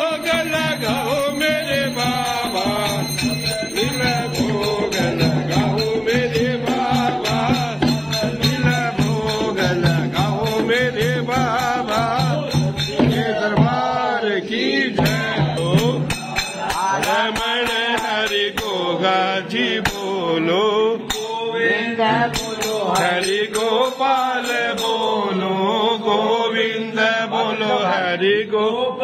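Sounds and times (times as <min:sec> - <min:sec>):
bells jingling: 0:00.0 - 0:13.5, 0:21.2 - 0:25.8
voices chanting to music: 0:00.0 - 0:29.0.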